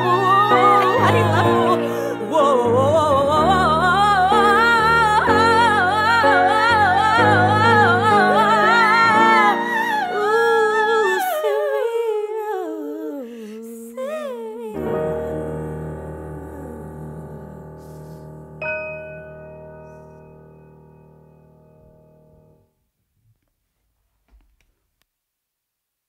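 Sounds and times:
piano chords: 0.0s - 11.2s, 14.8s - 22.7s
woman singing pop ballad: 0.0s - 18.3s.

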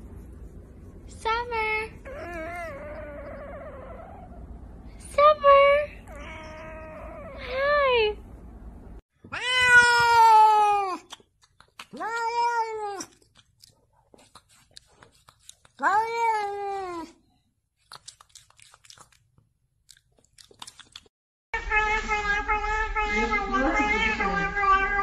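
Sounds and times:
cat meowing: 9.3s - 11.0s, 21.6s - 25.0s.

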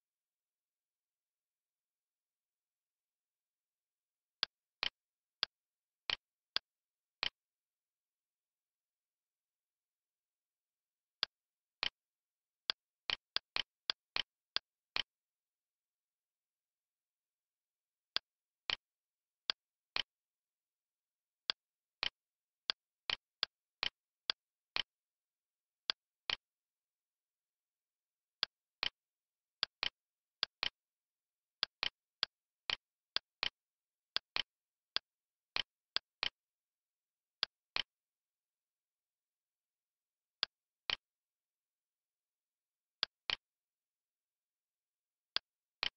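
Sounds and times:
computer mouse clicks: 45.4s - 45.9s.

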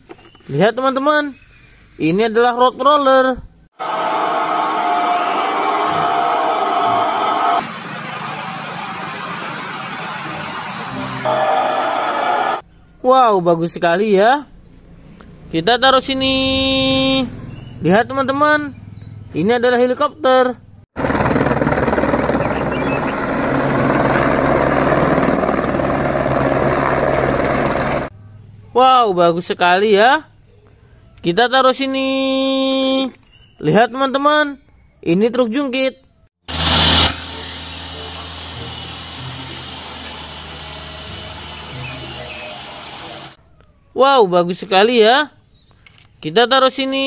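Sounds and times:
helicopter engine drone: 3.8s - 12.6s, 21.0s - 28.1s, 36.5s - 43.4s
helicopter rotor chopping: 3.8s - 12.6s, 21.0s - 28.1s, 36.5s - 43.4s
diesel truck engine running: 36.5s - 43.4s.

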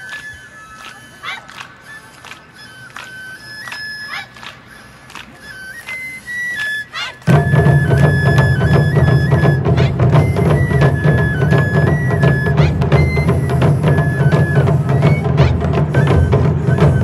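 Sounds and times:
transverse flute melody: 0.0s - 17.0s
taiko drums driving rhythm: 7.3s - 17.0s.

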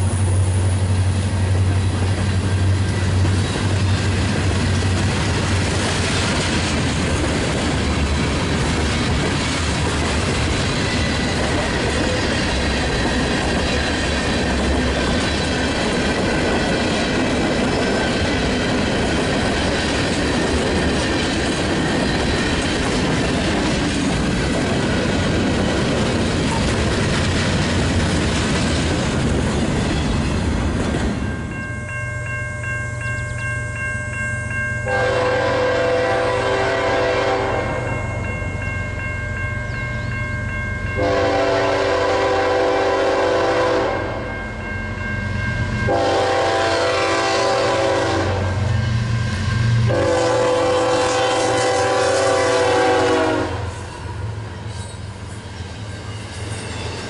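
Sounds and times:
freight train wheels on rails: 0.0s - 57.0s
locomotive horn blasts: 34.9s - 37.9s, 41.0s - 44.2s, 45.9s - 48.6s, 49.9s - 53.9s.

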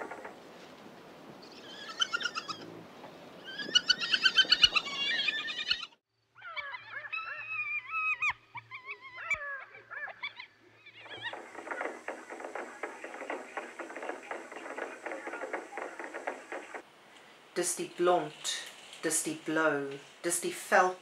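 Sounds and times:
hyena wavering sliding calls: 1.5s - 2.8s, 3.4s - 16.8s
hyena giggling calls: 1.6s - 2.7s, 3.4s - 13.6s
fast rattling rhythm: 11.2s - 16.8s.

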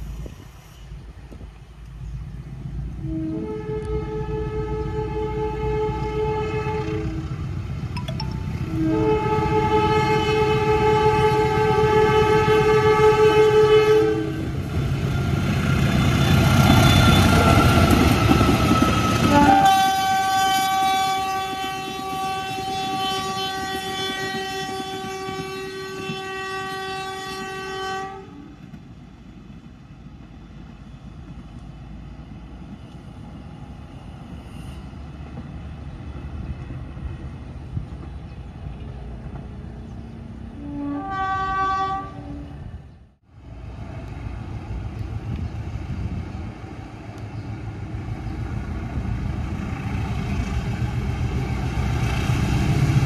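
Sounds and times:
train rumbling past: 0.0s - 53.0s
locomotive horn chord blasts: 3.0s - 7.4s, 8.2s - 14.5s, 19.2s - 28.4s, 40.6s - 42.6s.

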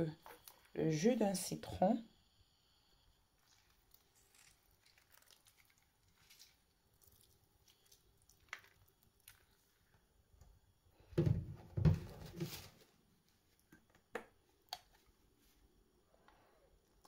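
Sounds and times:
soft squishy handling noises: 3.3s - 10.2s.

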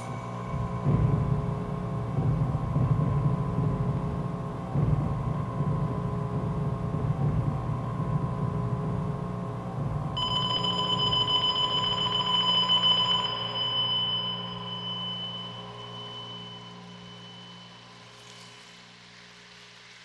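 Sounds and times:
low droning hum: 0.0s - 20.0s
high ringing tone: 10.2s - 18.6s.

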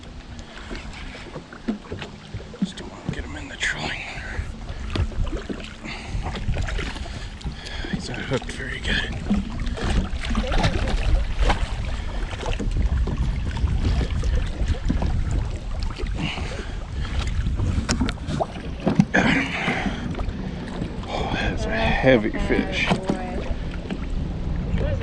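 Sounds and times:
water slapping at hull: 0.0s - 25.0s
wind buffeting microphone: 0.0s - 25.0s
fish thrashing in water: 4.3s - 24.2s.

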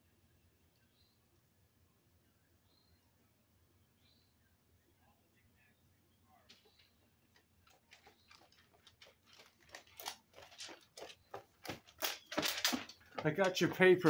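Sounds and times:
footsteps on concrete: 6.6s - 14.0s.

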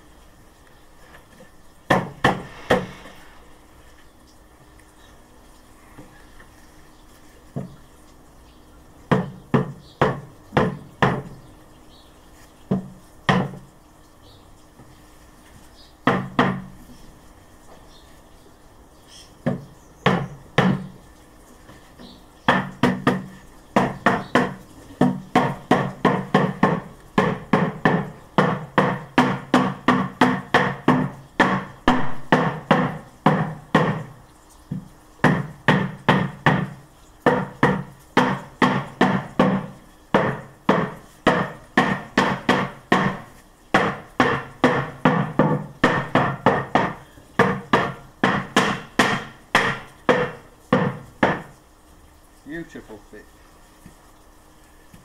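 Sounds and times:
mallet knocking on wood: 1.9s - 2.9s, 9.1s - 11.3s, 12.7s - 13.6s, 19.4s - 20.9s, 22.5s - 34.1s, 34.7s - 51.5s.

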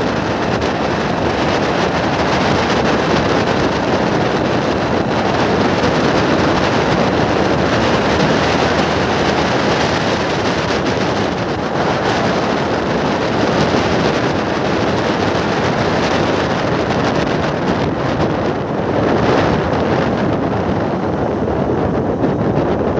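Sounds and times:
vehicle running at speed: 0.0s - 22.9s
wind on microphone: 0.0s - 22.9s.

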